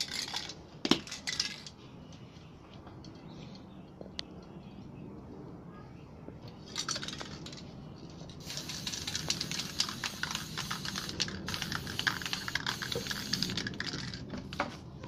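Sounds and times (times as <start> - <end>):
spray paint can hissing: 8.4 - 14.6.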